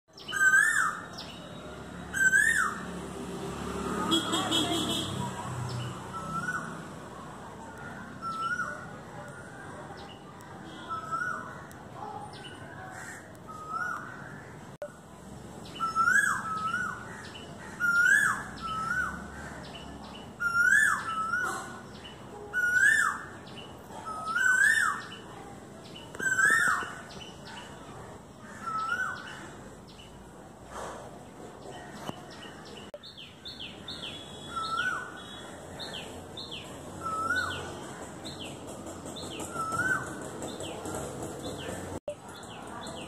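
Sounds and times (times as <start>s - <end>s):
cuckoo calling: 0.2s - 1.4s, 6.1s - 6.9s, 10.8s - 11.5s, 15.8s - 17.0s, 20.4s - 23.4s, 26.1s - 27.1s, 33.9s - 37.7s, 38.4s - 40.7s.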